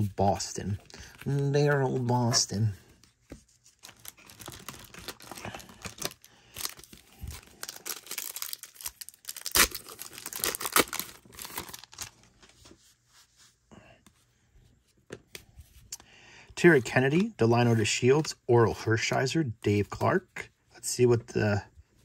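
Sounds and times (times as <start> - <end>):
plastic wrapper crinkling and tearing: 3.7 - 12.4.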